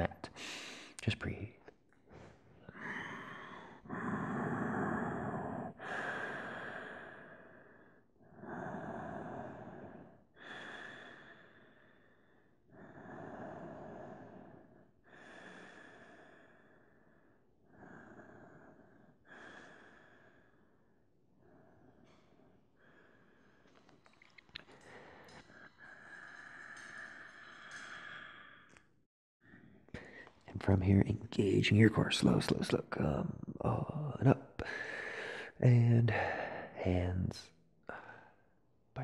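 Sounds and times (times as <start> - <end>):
man breathing deeply: 2.0 - 30.5, 34.6 - 36.8, 37.8 - 38.6.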